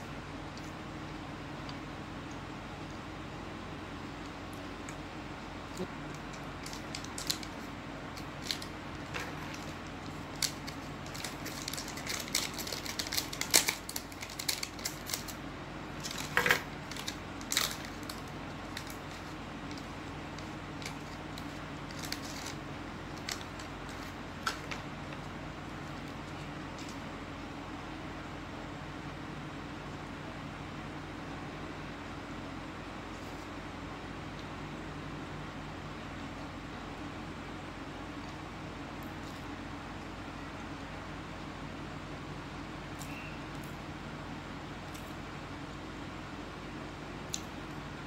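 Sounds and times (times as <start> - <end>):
steady low hum: 0.0 - 48.0
plastic wrapper crinkling and tearing: 5.8 - 15.4, 16.0 - 27.0.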